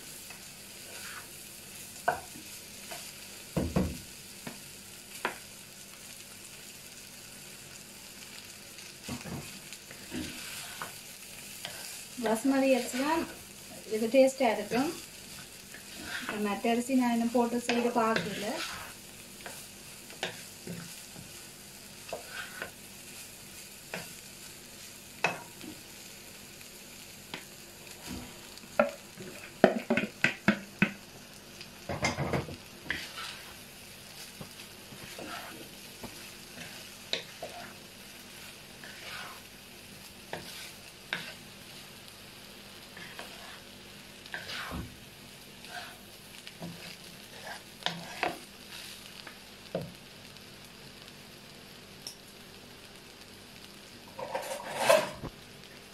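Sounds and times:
rice sizzling in a pan: 0.0s - 55.9s
spatula knocking and scraping pan: 2.0s - 4.6s, 15.7s - 21.3s, 28.8s - 31.0s, 31.9s - 33.5s, 34.4s - 37.8s, 40.3s - 41.4s, 44.3s - 45.0s.

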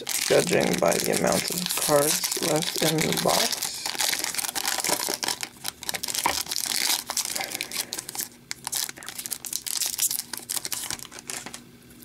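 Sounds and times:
foil wrapper crinkling and tearing: 0.0s - 12.0s.

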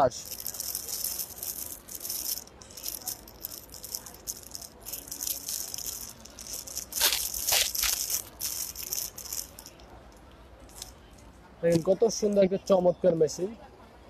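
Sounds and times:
plastic rattling and rustling: 0.2s - 9.8s.

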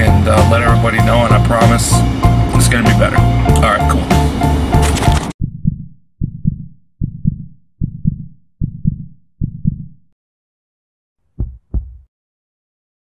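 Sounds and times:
heartbeat thumps: 5.4s - 10.2s, 11.3s - 12.1s.

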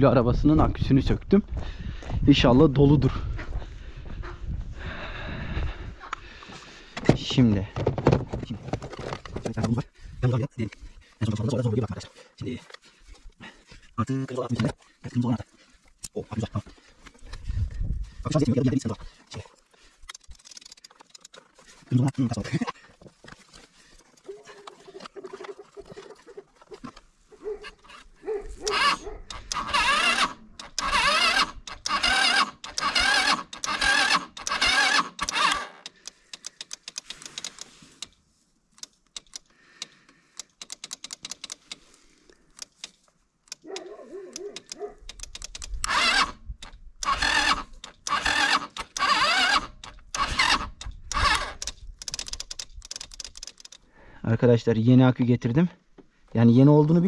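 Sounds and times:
animals calling: 23.8s - 31.4s.

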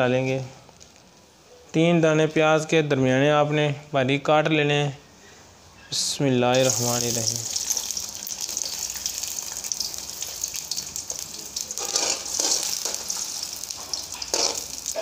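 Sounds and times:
onions sizzling in hot oil: 6.5s - 15.0s
metal spoon scraping a pan: 11.7s - 15.0s.

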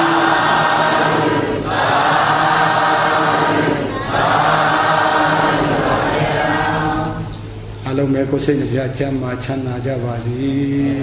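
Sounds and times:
group of voices chanting: 0.0s - 7.2s.

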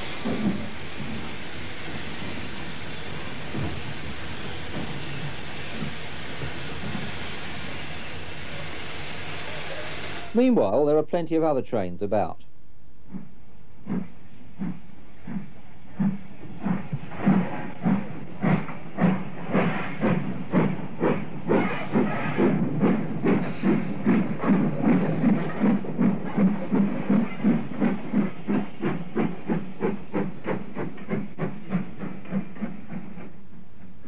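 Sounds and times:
hiss of steam: 0.0s - 10.4s
steam locomotive chuffing: 0.0s - 11.6s, 13.1s - 34.0s.

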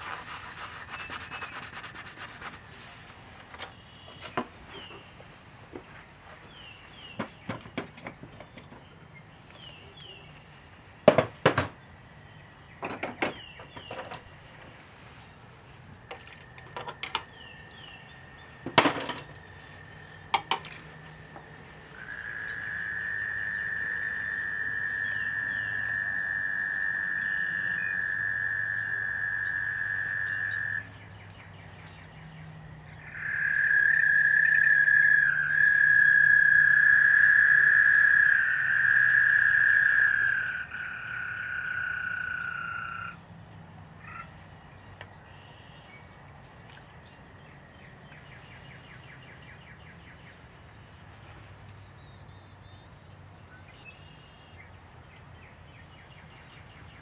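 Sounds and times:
sharp taps and knocks: 7.2s - 8.8s, 11.0s - 11.8s, 20.3s - 21.5s
frog trilling: 21.9s - 31.0s, 33.0s - 43.2s.

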